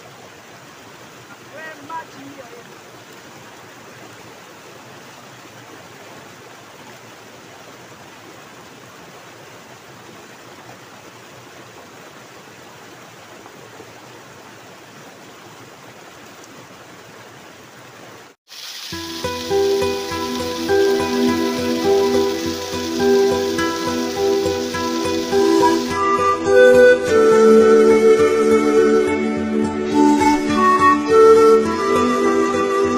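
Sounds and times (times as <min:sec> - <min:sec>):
stream water rushing: 0:00.0 - 0:32.9
music: 0:18.9 - 0:32.9.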